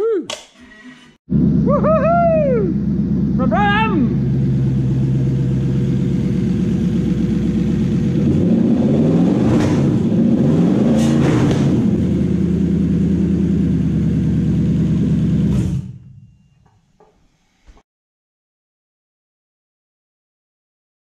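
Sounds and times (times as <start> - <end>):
car engine idling and revving: 1.3 - 16.2.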